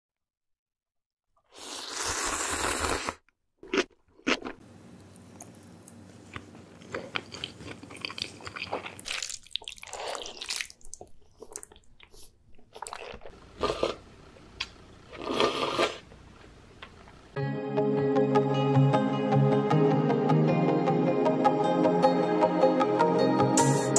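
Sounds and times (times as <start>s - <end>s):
noodle slurping: 1.5s - 3.2s, 15.1s - 16.1s
chewing and mouth smacking: 3.6s - 13.9s.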